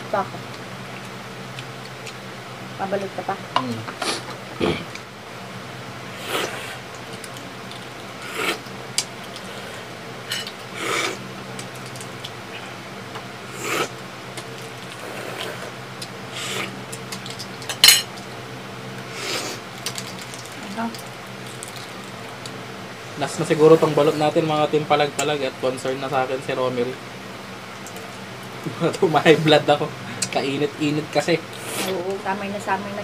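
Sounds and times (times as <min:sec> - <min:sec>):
egg shells crackling: 0:06.8 - 0:09.5, 0:11.4 - 0:12.5, 0:16.8 - 0:18.3, 0:19.6 - 0:22.6
dishes clinking: 0:17.7 - 0:18.1.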